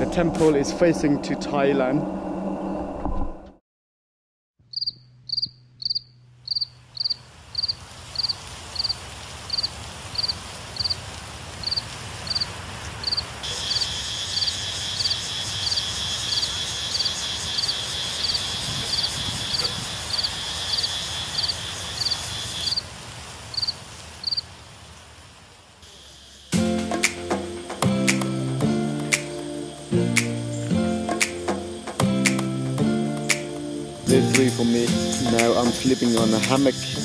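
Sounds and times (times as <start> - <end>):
insect high chirp: 4.7 - 11.0, 11.6 - 22.8, 23.5 - 24.4, 25.8 - 37.0
rapidly pulsing insect buzz: 4.7 - 11.0, 11.6 - 22.8, 25.8 - 37.0.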